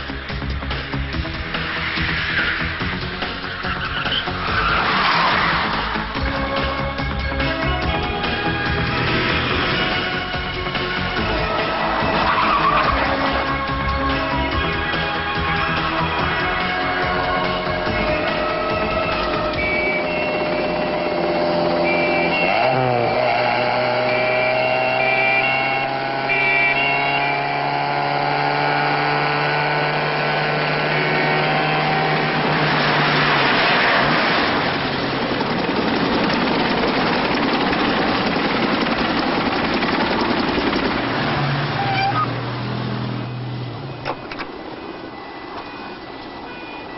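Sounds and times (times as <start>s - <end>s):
loud noisy rush: 0.0s - 24.1s, 28.8s - 42.0s
car engines revving: 0.0s - 46.9s.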